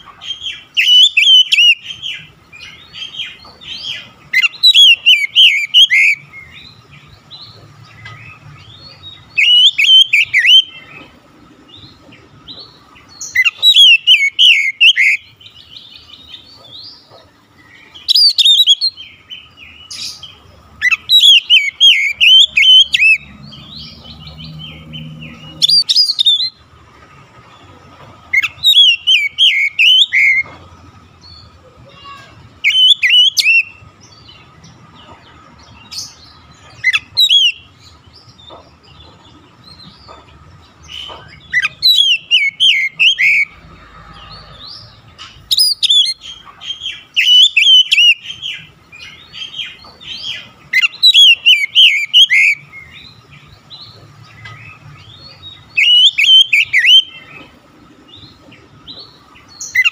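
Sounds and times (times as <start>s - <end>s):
bird singing whistled notes: 0.3s - 7.6s, 8.3s - 11.1s, 11.8s - 16.7s, 17.9s - 26.6s, 28.4s - 30.5s, 32.0s - 34.4s, 36.8s - 37.9s, 40.9s - 43.6s, 45.4s - 57.5s, 58.1s - 59.9s.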